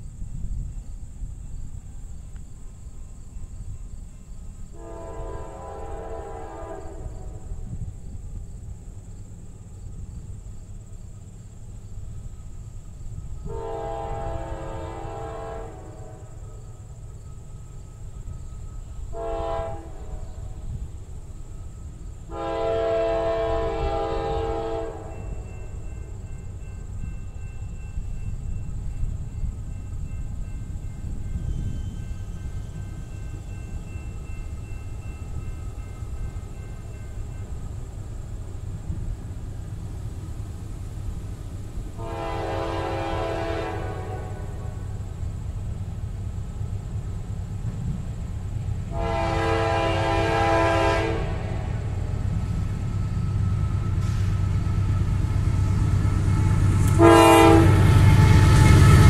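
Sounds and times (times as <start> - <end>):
distant train air horn: 4.7 - 7.8, 13.4 - 16.9, 18.2 - 20.8, 22.3 - 26.5, 42.0 - 45.0, 48.8 - 59.0.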